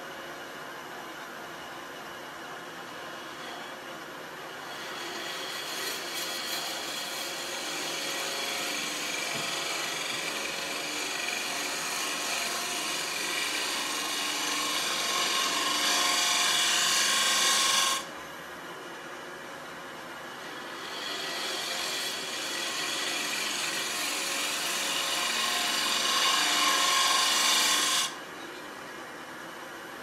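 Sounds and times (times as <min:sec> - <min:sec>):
lathe running: 0:03.1 - 0:03.6, 0:04.7 - 0:18.1, 0:20.4 - 0:28.2
lathe tool scraping wood: 0:03.1 - 0:03.7, 0:04.7 - 0:18.1, 0:20.4 - 0:28.2.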